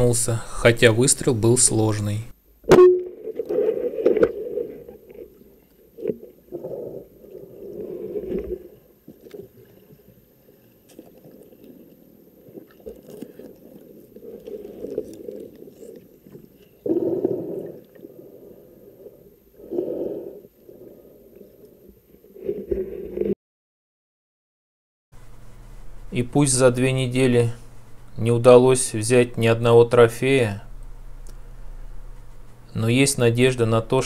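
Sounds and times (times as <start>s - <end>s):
muffled water churning underwater: 2.6s - 23.3s.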